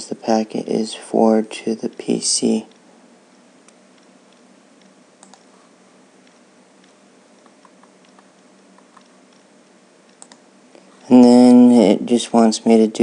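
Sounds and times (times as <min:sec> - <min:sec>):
low hiss: 0:00.0 - 0:13.0
computer mouse clicks: 0:03.6 - 0:05.5, 0:06.2 - 0:10.4.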